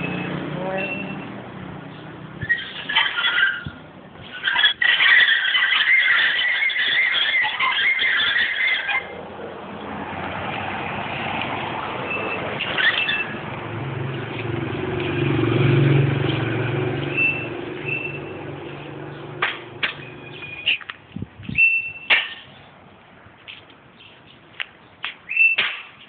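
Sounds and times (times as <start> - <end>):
vehicle engine passing: 0.0 - 3.3, 8.9 - 20.7
bird chirps: 20.0 - 20.8, 25.3 - 25.6.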